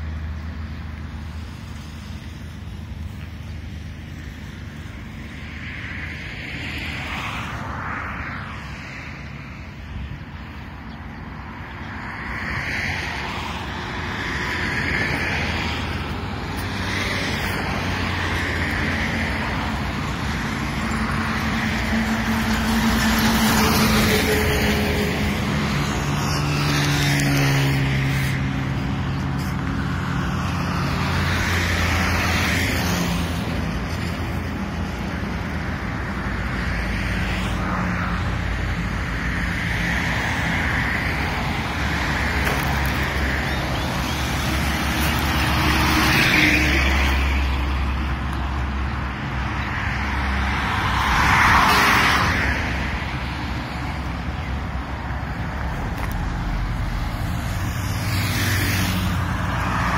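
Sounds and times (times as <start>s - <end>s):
highway traffic: 0.0s - 59.9s
heavy vehicle passing: 37.3s - 59.9s.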